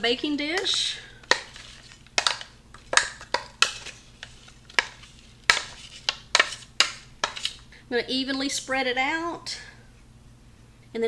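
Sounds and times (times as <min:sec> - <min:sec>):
crumbs rustling: 0:00.6 - 0:07.7.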